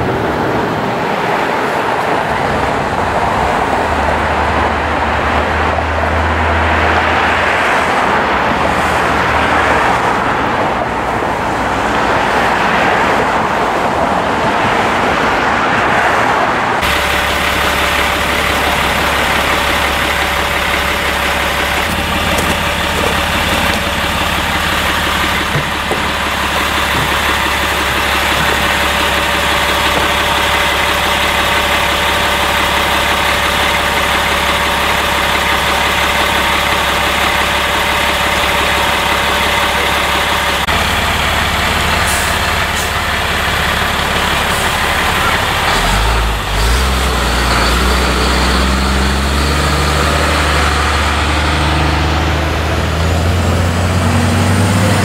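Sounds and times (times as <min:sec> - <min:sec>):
street traffic: 0:00.0 - 0:55.0
diesel truck engine idling: 0:16.7 - 0:55.0.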